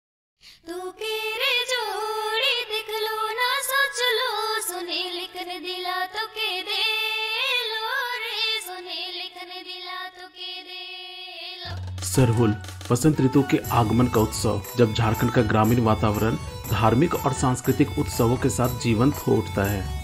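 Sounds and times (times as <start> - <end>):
woman singing in high voice: 0.6 - 11.9.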